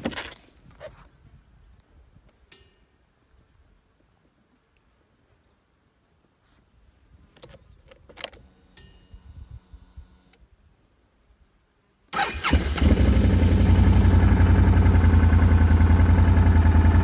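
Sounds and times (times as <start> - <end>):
faint high electrical whine: 6.9 - 12.3.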